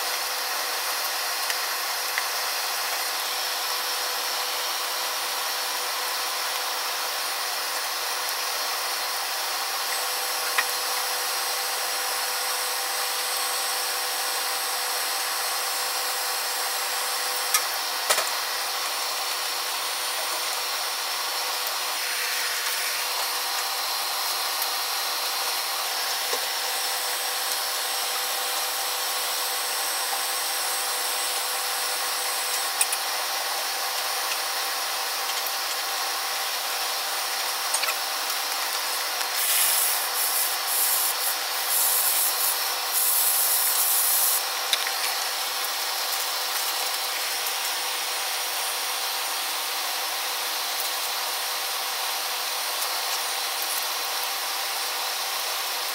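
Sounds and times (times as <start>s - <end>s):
matchsticks burning and crackling: 39.2s - 44.4s.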